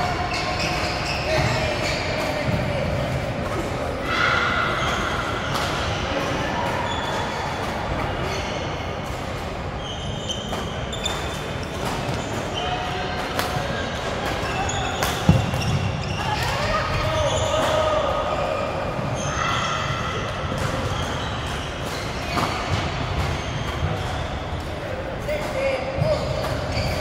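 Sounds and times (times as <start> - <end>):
sneakers squeaking on court floor: 0.0 - 27.0
voices in a hall: 0.0 - 27.0
racket hitting shuttlecock: 15.0 - 15.7.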